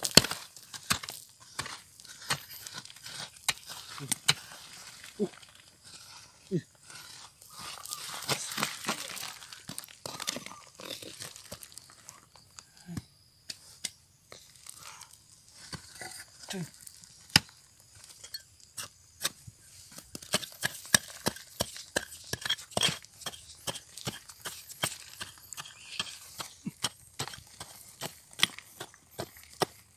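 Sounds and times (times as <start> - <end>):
stick scraping gravelly soil: 0.0 - 29.9.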